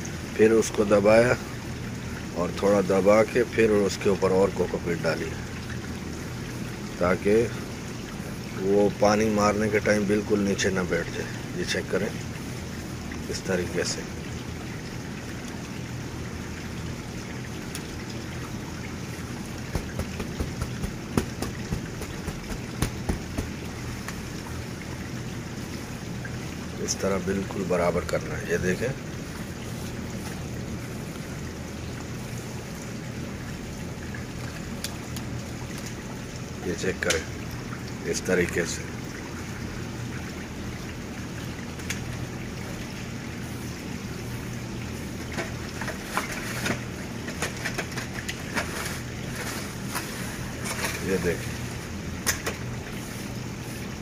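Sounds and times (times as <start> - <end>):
steady background hum: 0.0 - 54.0
hands tapping soil in tray: 19.7 - 24.2.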